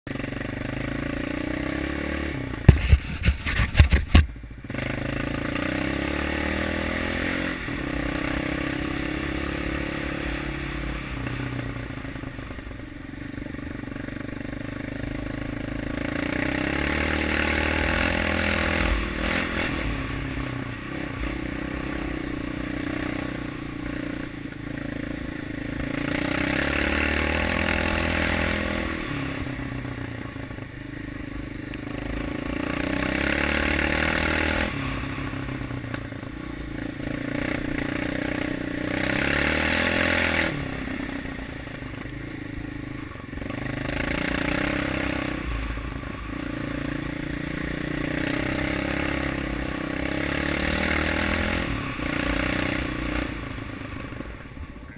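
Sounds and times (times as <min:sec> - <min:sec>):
quad engine revving: 0:00.1 - 0:54.9
sharp knocks and clatter: 0:02.6 - 0:04.4.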